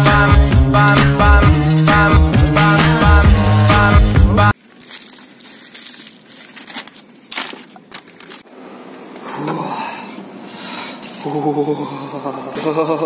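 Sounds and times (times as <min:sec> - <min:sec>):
music: 0:00.0 - 0:04.6
paper bag crinkling: 0:04.6 - 0:08.5.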